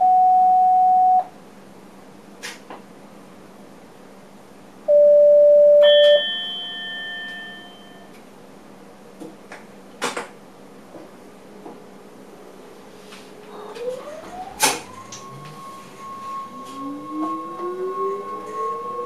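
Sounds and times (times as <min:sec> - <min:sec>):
loud steady beep: 0:00.0 - 0:01.3, 0:04.9 - 0:08.1, 0:14.4 - 0:19.0
bell-like chime: 0:05.8 - 0:08.1, 0:14.8 - 0:19.0.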